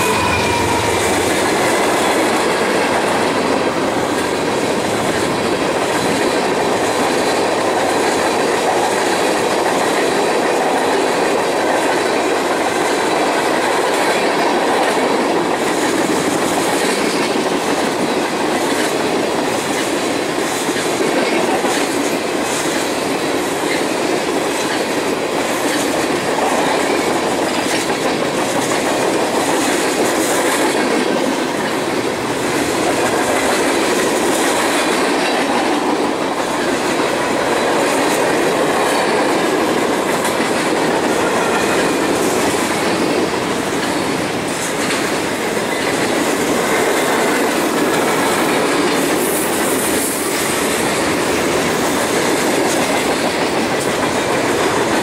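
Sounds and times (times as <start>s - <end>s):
freight train wheels rumbling on rails: 0.0s - 55.0s.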